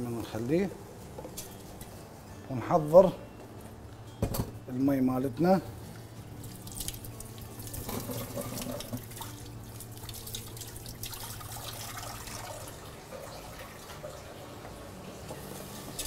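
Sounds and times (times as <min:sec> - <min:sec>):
clatter of items at sink: 0:07.8 - 0:09.0
tap water running into sink: 0:07.8 - 0:09.4.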